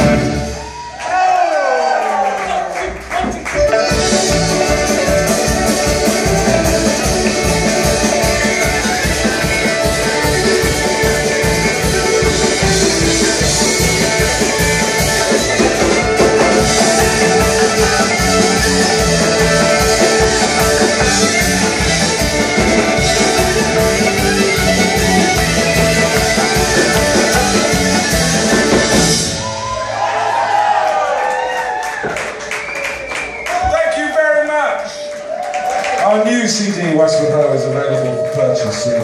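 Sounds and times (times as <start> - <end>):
folk band playing: 0.0 - 0.8, 3.1 - 29.8
electric guitar: 3.2 - 30.0
banjo: 3.5 - 29.2
accordion: 3.5 - 29.5
fiddle: 3.6 - 29.4.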